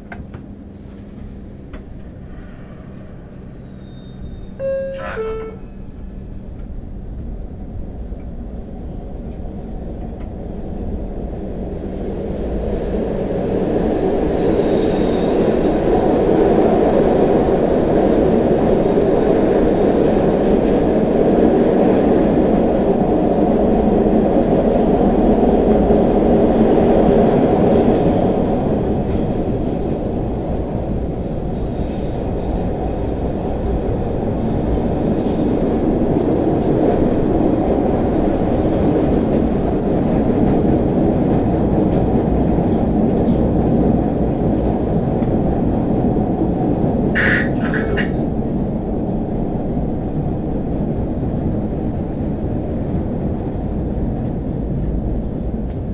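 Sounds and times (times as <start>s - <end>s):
subway train rumbling on rails: 0.0s - 55.9s.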